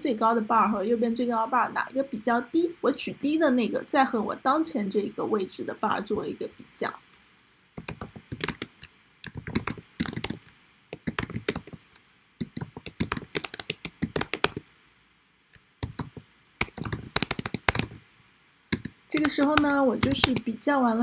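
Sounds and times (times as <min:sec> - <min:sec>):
computer keyboard typing: 0:07.8 - 0:11.8, 0:12.4 - 0:14.6, 0:15.8 - 0:18.0, 0:18.7 - 0:20.6.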